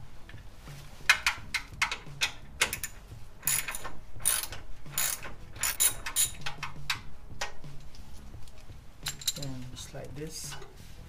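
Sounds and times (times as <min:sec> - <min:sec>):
socket ratchet clicking: 0:01.1 - 0:07.6.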